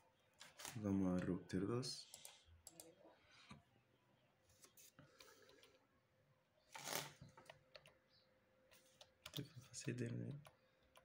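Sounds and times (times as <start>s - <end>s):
faint keyboard clicks: 5.0s - 5.8s, 7.2s - 8.0s, 8.7s - 11.0s.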